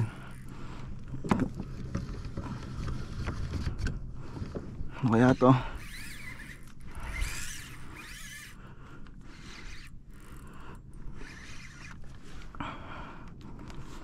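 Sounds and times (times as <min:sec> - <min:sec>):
fishing reel gears rasping: 0:00.0 - 0:00.6, 0:05.0 - 0:12.6.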